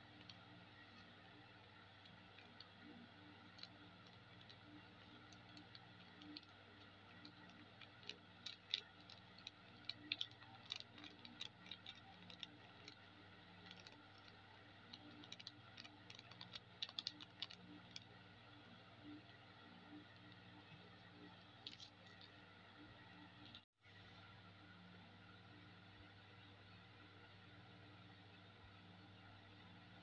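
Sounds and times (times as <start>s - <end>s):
faint steady hum: 0.0s - 30.0s
plastic sachet crinkling: 1.7s - 18.2s, 21.2s - 22.3s.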